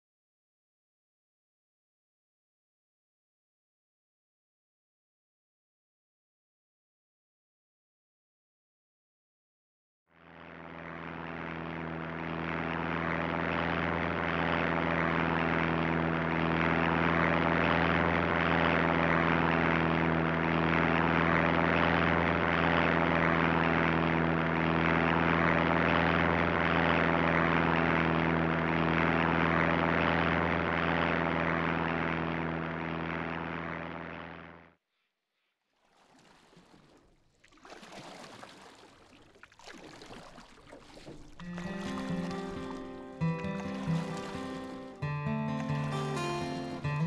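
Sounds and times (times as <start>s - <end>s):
propeller engine drone: 10.1s - 34.8s, 40.8s - 47.0s.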